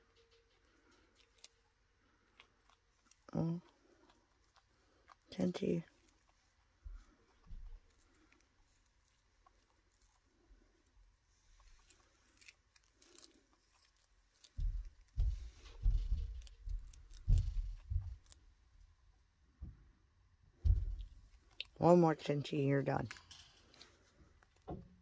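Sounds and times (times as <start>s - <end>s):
chinchilla crunching a dry treat: 0.0s - 19.2s, 22.9s - 25.0s
dull low thumps: 20.5s - 21.5s.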